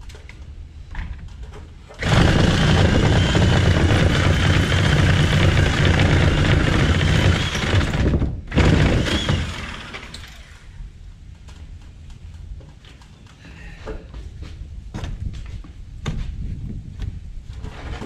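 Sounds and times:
power saw cutting wood: 2.0s - 10.6s.

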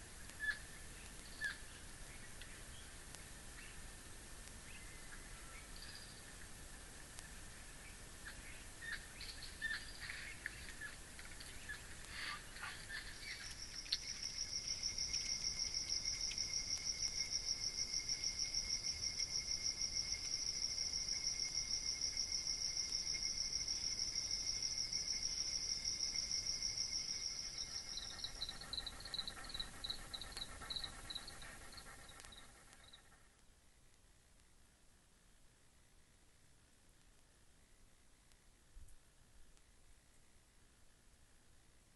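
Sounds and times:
insect trilling: 12.1s - 33.1s.

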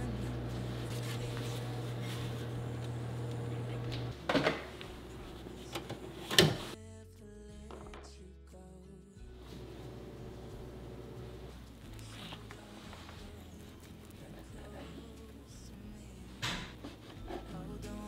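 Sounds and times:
microwave oven humming: 0.0s - 6.8s, 9.5s - 11.5s
soft music: 0.0s - 18.0s.

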